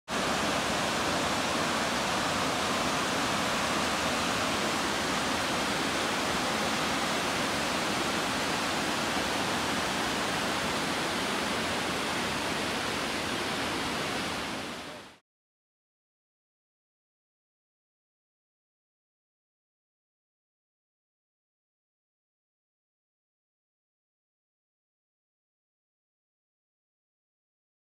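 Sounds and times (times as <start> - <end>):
waterfalls and rushing river: 0.1 - 15.2.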